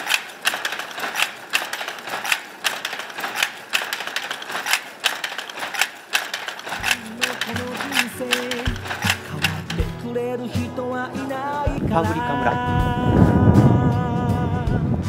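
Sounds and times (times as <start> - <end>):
loom mechanism rattling and ticking: 0.0 - 10.1
weaving loom clacking: 0.0 - 10.1.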